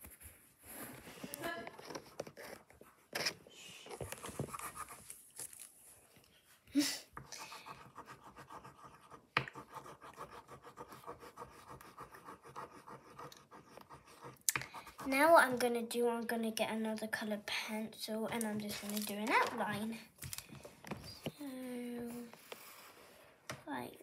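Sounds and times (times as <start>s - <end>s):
pencil scratching on paper: 0.0s - 5.2s, 7.2s - 15.7s.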